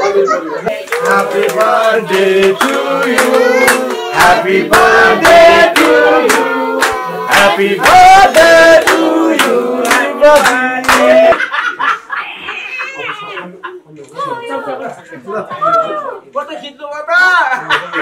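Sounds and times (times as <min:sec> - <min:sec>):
group of people singing: 0:00.5 - 0:11.5
people clapping along: 0:00.7 - 0:11.4.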